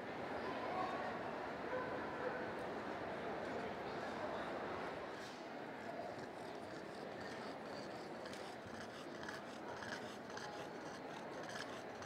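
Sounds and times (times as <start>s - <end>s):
dog breathing with snorting and snoring: 6.2s - 12.0s.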